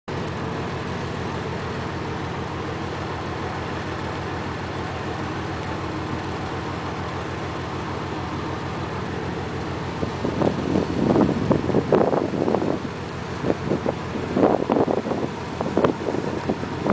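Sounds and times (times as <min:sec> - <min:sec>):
ship engine humming: 0:00.1 - 0:16.9
wind buffeting microphone: 0:08.3 - 0:16.9.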